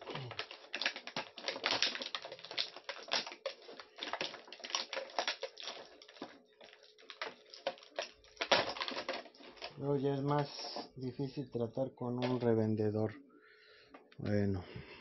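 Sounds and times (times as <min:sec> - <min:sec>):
small hard objects clicking: 0:00.0 - 0:10.9.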